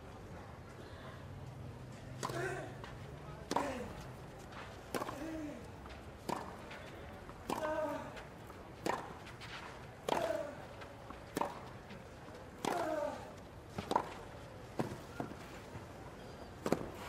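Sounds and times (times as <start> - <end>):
racket striking tennis ball: 2.2 - 2.6, 4.9 - 5.4, 6.2 - 6.6, 7.4 - 7.9, 8.8 - 9.2, 10.0 - 10.5, 11.3 - 11.7, 12.6 - 14.2.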